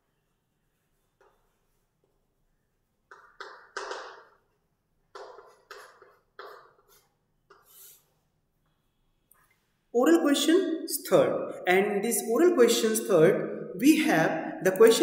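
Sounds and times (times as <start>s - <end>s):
chalk scratching on a blackboard: 5.1s - 8.3s.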